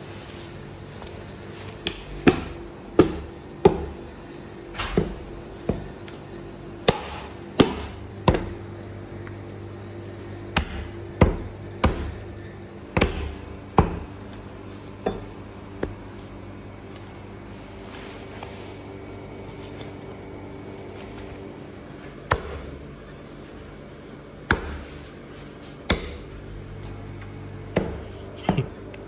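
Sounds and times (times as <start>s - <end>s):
cleaver chopping on wooden block: 1.9s - 4.0s, 6.8s - 8.6s, 10.6s - 12.2s, 13.0s - 14.1s, 24.5s - 24.8s, 25.9s - 26.2s.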